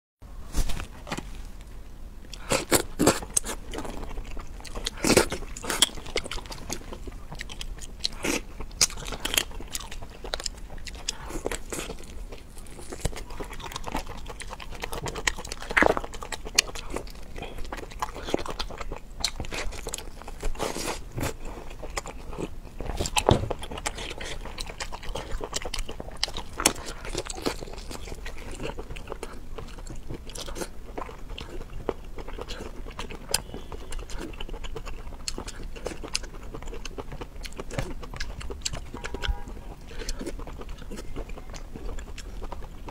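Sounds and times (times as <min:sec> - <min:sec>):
person chewing food: 0:02.2 - 0:42.9.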